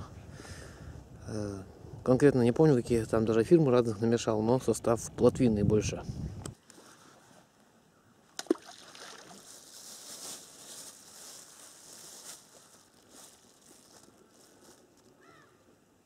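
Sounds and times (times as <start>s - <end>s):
bait plopping into water: 8.4s - 9.3s
plastic bag rustling: 9.0s - 15.1s.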